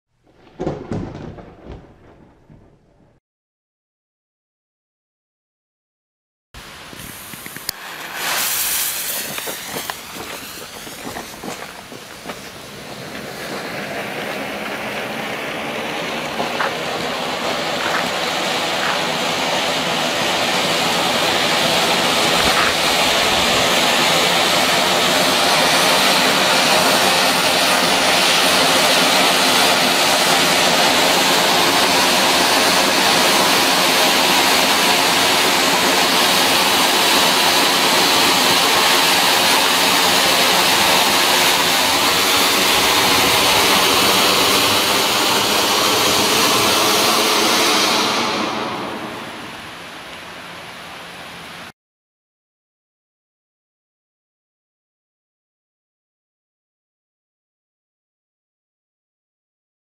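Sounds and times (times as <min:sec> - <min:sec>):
firework fountain hissing: 0:06.6 - 0:51.7.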